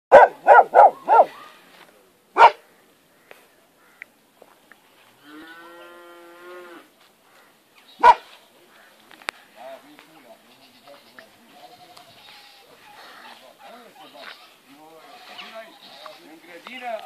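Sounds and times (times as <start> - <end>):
dog barking: 0.1 - 1.5, 2.4 - 2.6, 8.0 - 8.3
cow mooing: 5.2 - 6.9.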